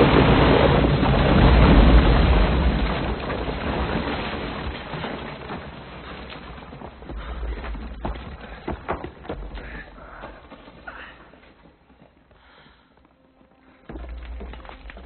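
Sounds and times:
explosion deep rumble: 0.0 - 6.2.

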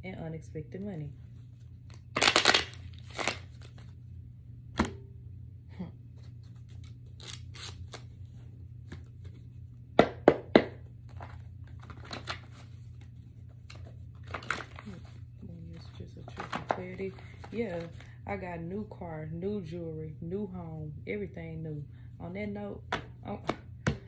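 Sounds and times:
steady low hum: 0.0 - 24.0
cards rustling: 1.8 - 4.0, 6.2 - 9.5, 11.1 - 18.2.

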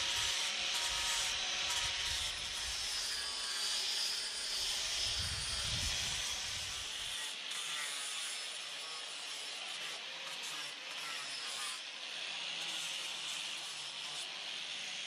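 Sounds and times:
sander hissing on wood: 0.0 - 11.9.

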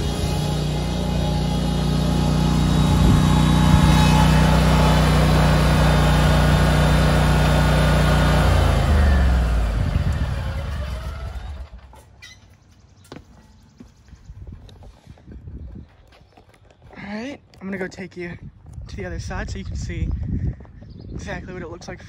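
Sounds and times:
mower engine running: 0.0 - 12.1.

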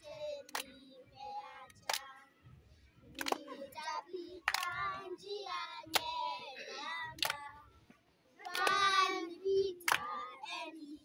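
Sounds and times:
sharp hand claps: 0.4 - 0.8, 1.8 - 2.1, 3.2 - 3.6, 4.4 - 4.8, 7.1 - 7.5, 8.4 - 8.9, 9.8 - 10.1
children singing: 8.4 - 11.0.

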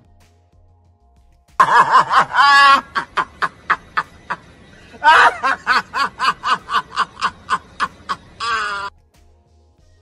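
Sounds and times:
man laughing hard: 1.6 - 8.9.

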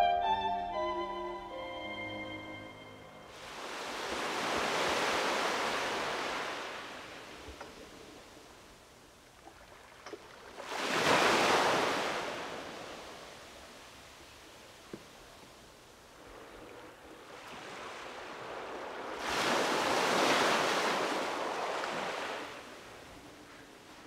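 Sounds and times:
ocean waves washing in: 1.9 - 14.7, 15.6 - 24.0.

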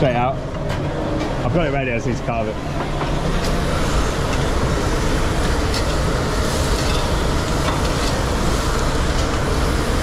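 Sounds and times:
kitchen roar: 0.0 - 10.0
food sizzling on grill: 3.1 - 10.0.

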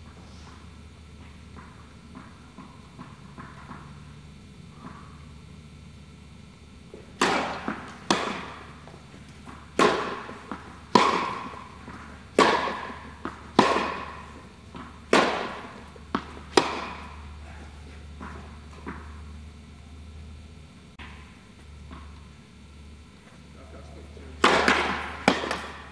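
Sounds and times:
racket striking tennis ball: 1.2 - 4.0, 6.9 - 19.2, 24.4 - 25.9
tennis ball bouncing: 1.2 - 5.2, 6.9 - 19.4, 24.4 - 25.9.

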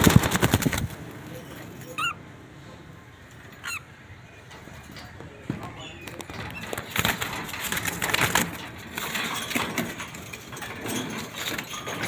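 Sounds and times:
parrots making harsh calls: 1.9 - 2.2, 3.6 - 4.0
knocks and rattles: 4.5 - 12.0.

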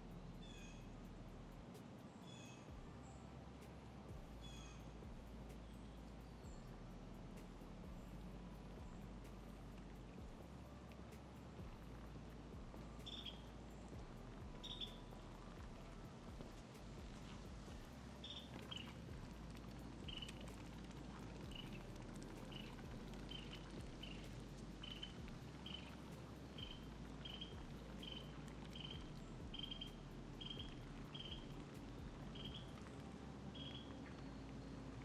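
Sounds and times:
faint low rumble: 0.0 - 35.0
animal chirping: 32.4 - 32.7, 33.6 - 33.9.

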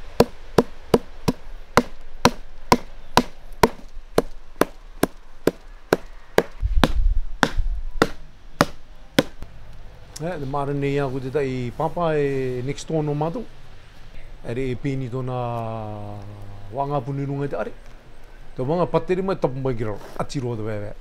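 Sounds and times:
hammer pounding bark on wood: 0.0 - 9.4.

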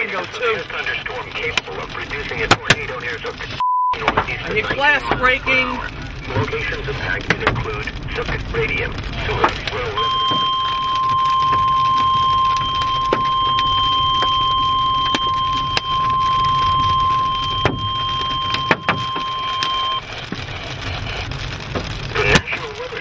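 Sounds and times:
hail knocking on vehicle: 0.0 - 23.0
low rumble: 0.6 - 23.0
high-pitched alarm tone: 10.0 - 20.0.

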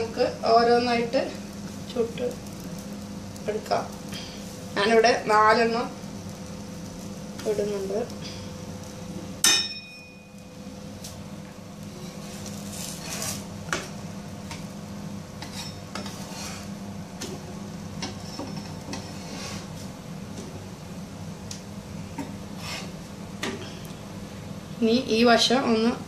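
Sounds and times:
steady low hum: 0.0 - 26.0
sharp metallic clink with ring: 9.5 - 10.3
spatula tapping and scraping griddle: 12.1 - 14.7, 15.4 - 17.4, 18.0 - 19.8.

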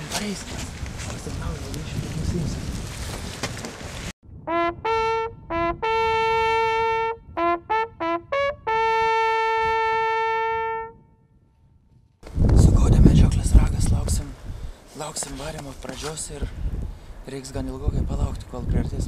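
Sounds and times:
rustling noise: 0.0 - 4.2, 14.8 - 16.5
hunting horn call: 4.5 - 11.0.

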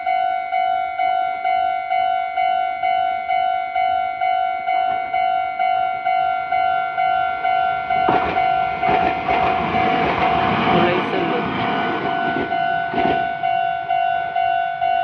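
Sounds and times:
level crossing warning bell ringing: 0.0 - 15.0.

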